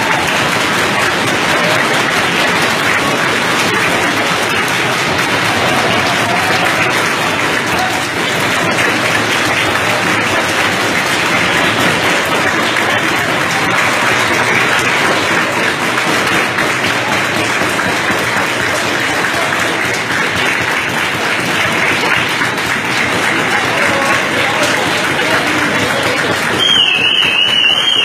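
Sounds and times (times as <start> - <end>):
crowd clapping: 0.0 - 28.0
people shouting: 5.2 - 8.4.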